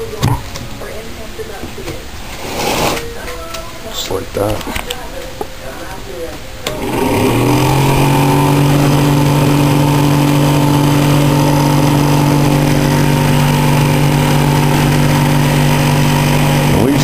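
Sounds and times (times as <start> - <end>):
fan spinning up and humming: 0.0 - 17.0.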